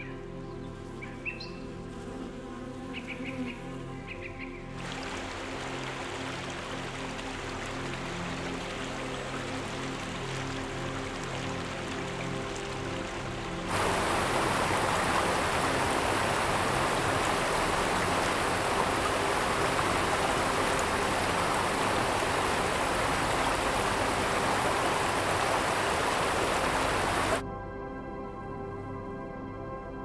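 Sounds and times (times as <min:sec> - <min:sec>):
water rushing down a waterfall: 0:04.8 - 0:27.4.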